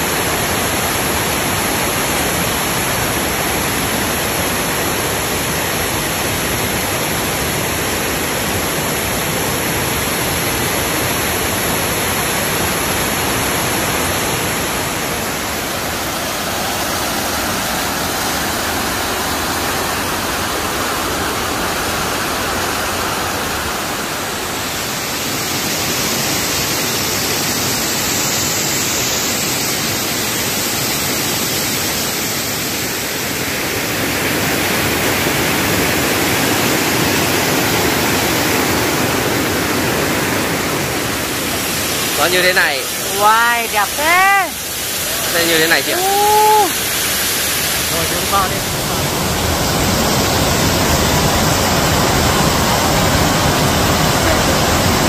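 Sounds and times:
waterfall rushing over rocks: 0:00.0 - 0:55.0.

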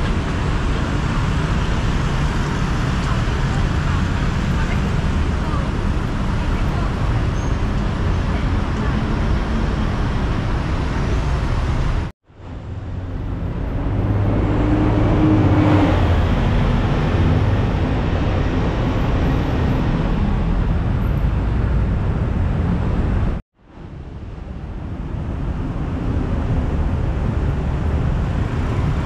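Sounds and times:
road traffic noise: 0:00.0 - 0:29.0
vehicle engine passing close: 0:12.6 - 0:23.2.

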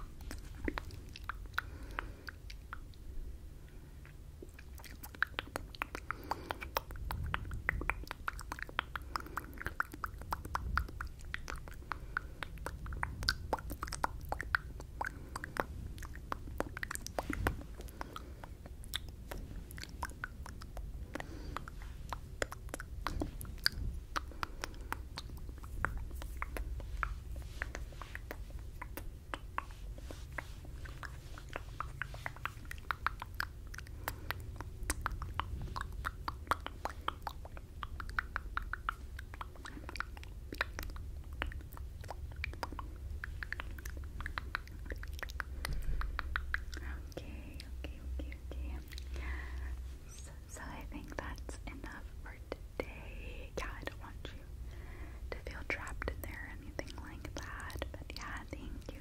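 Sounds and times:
wet mouth clicks and lip smacks: 0:00.0 - 0:59.0.

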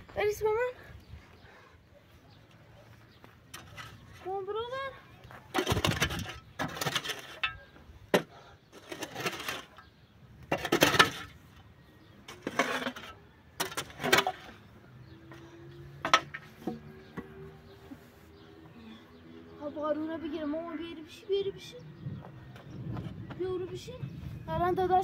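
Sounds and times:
shovel scraping stony earth: 0:03.5 - 0:04.3, 0:05.5 - 0:11.5, 0:12.2 - 0:14.6.

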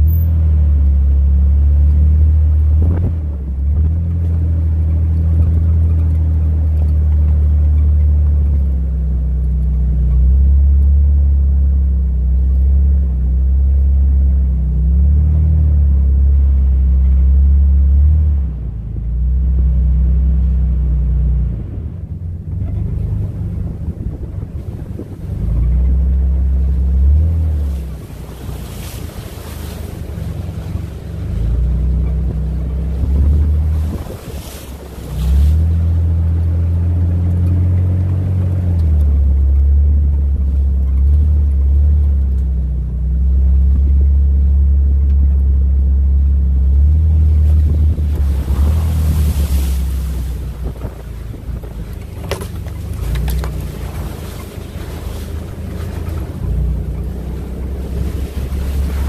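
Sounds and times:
low motor rumble: 0:00.0 - 0:59.0
wind on microphone: 0:02.6 - 0:04.6, 0:21.3 - 0:37.2, 0:47.0 - 0:59.0.

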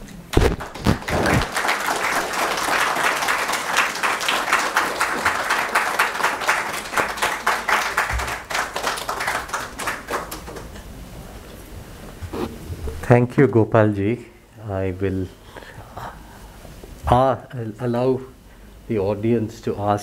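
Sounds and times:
audience applauding: 0:00.4 - 0:10.8.

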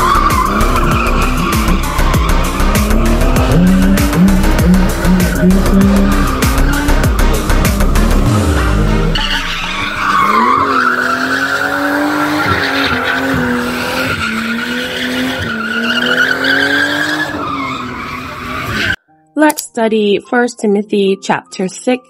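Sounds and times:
car engine running hard: 0:00.0 - 0:15.4
tyres squealing: 0:00.0 - 0:19.0.

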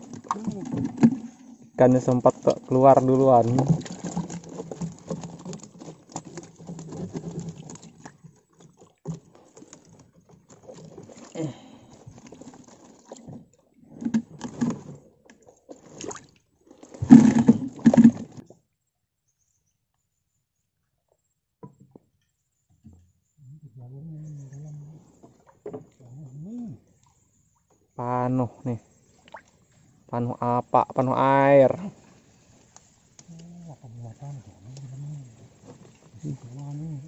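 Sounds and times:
water splashing: 0:00.0 - 0:18.4, 0:28.6 - 0:30.3, 0:31.3 - 0:37.0.

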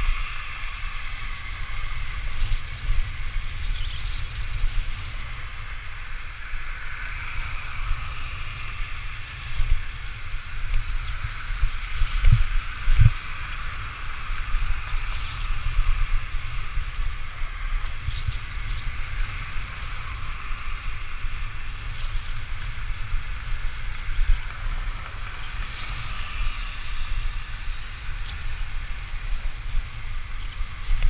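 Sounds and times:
wind buffeting microphone: 0:00.0 - 0:31.0
tyres hissing on road: 0:18.0 - 0:30.9.

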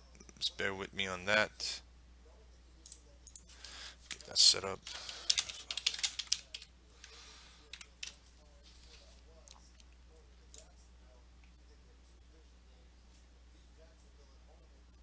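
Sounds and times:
faint low electrical hum: 0:00.0 - 0:15.0
computer keyboard and mouse clicking: 0:04.8 - 0:08.2.

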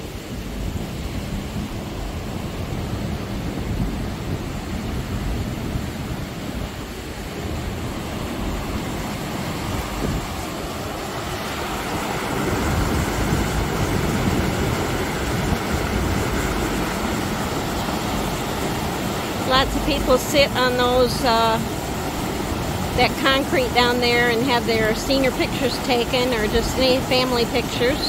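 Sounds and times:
wind buffeting microphone: 0:00.0 - 0:28.0
river rapids rushing over rocks: 0:06.2 - 0:28.0.

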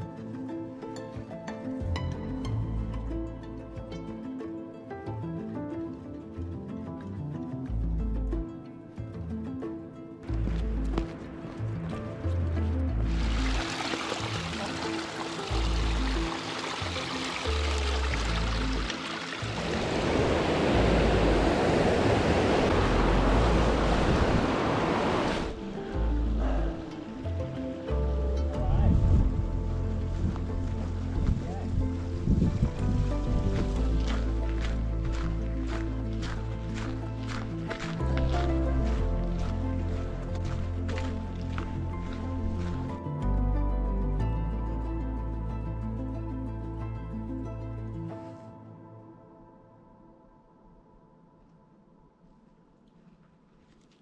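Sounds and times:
calm ambient music: 0:00.0 - 0:54.0
river rushing over rocks: 0:13.1 - 0:26.0.

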